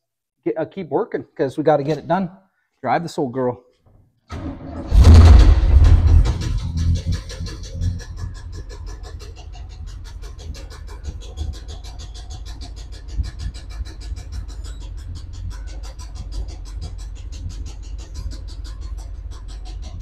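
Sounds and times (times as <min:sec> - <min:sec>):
truck engine knocking: 0:04.4 - 0:20.0.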